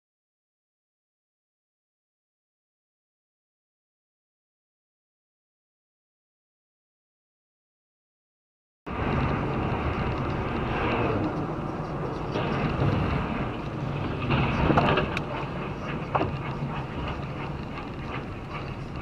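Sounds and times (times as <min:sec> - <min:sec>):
car cabin road and engine noise: 0:08.9 - 0:19.0.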